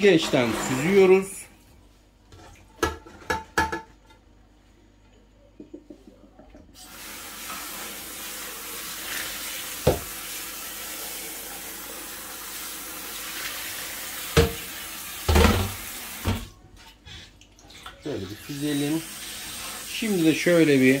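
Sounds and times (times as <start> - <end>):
water running into a metal sink: 6.8 - 16.6, 17.8 - 21.0.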